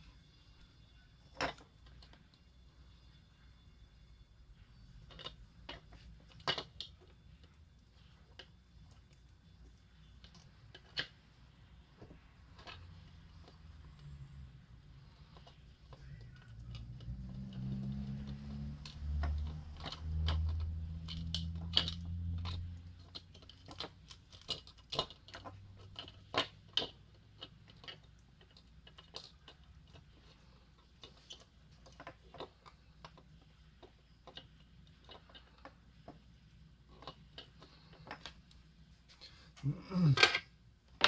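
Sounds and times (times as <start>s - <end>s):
fingers clicking and tapping plastic: 15.2s - 38.6s.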